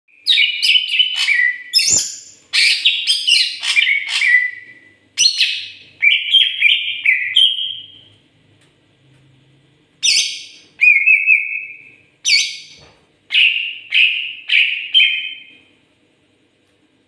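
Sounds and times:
bird singing whistled notes: 0.1 - 8.1, 10.0 - 15.5.

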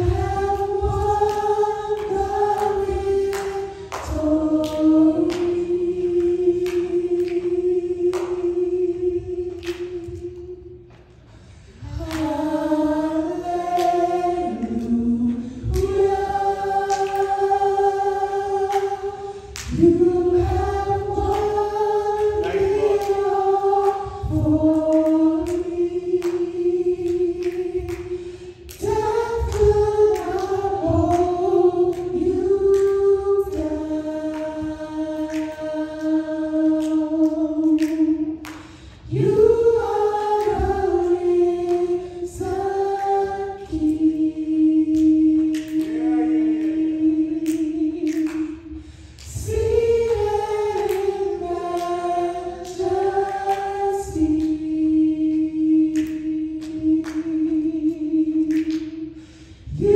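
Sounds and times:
choir singing in harmony: 0.0 - 59.9.

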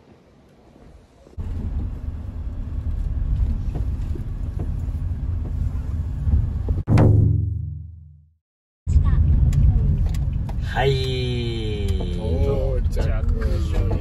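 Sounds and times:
car road and engine rumble: 0.1 - 6.9, 8.9 - 14.0.

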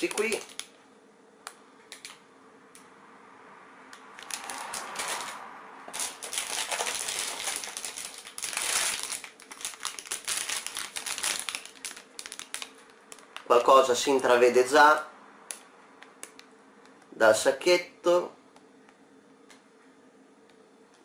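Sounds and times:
plastic bags crinkling: 0.0 - 0.8, 4.2 - 14.3.

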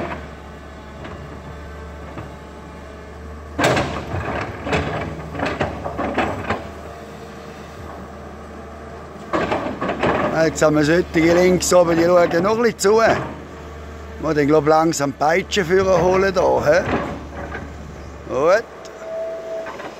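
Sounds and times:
excavator engine running: 0.0 - 19.9.

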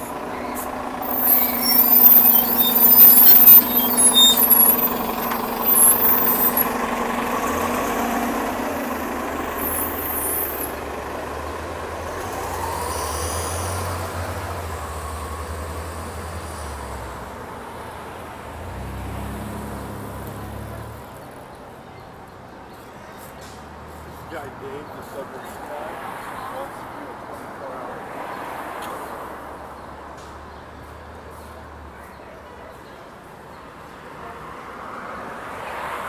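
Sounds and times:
bus engine running: 0.0 - 19.1.

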